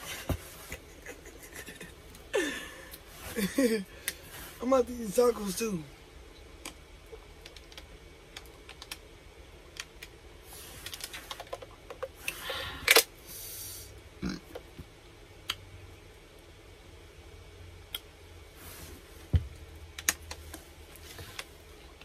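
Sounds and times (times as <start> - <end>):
eating clicks and crackles: 6.4 - 9.0.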